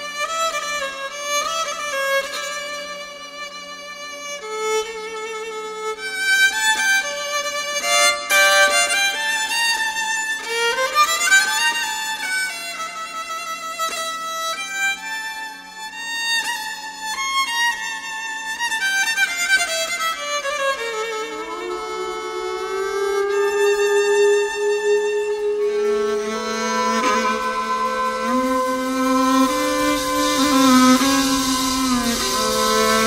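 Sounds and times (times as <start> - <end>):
instrumental melody: 19.3 - 33.0
low drone: 20.5 - 33.0.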